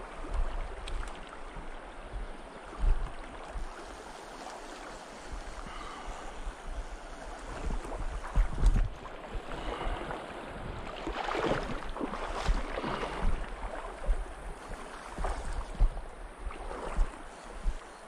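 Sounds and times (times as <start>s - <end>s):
stream water splashing over rocks: 0.0s - 17.4s
wind buffeting microphone: 0.0s - 18.0s.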